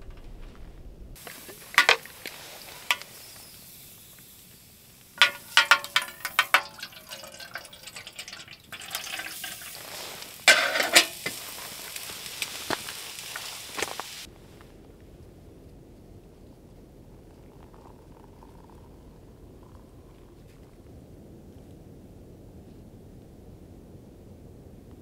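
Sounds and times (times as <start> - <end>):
metal kettle clinking: 1.2 - 3.1, 5.2 - 11.4
water pouring into kettle: 1.2 - 3.6, 5.1 - 13.9, 17.2 - 20.6.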